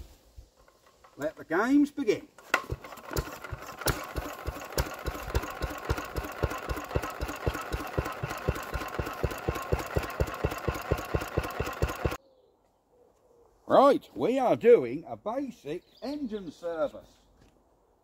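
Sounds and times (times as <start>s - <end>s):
single-cylinder engine idling: 2.7s - 12.2s.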